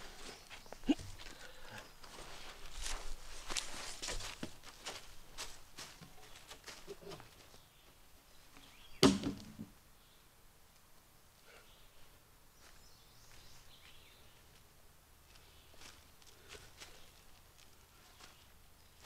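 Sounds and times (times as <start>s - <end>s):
footsteps on leaf litter: 2.0s - 7.4s, 15.3s - 19.0s
log landing with heavy thud: 9.0s - 9.8s.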